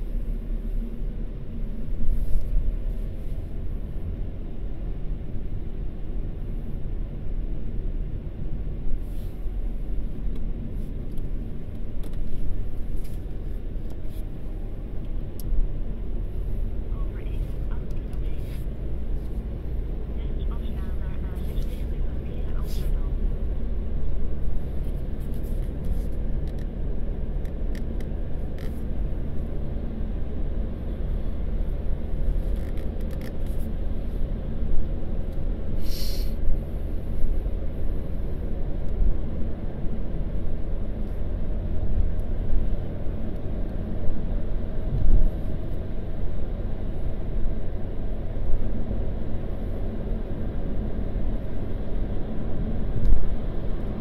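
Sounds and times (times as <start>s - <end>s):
car road and engine rumble: 0.0s - 54.0s
brief hiss: 35.8s - 36.5s.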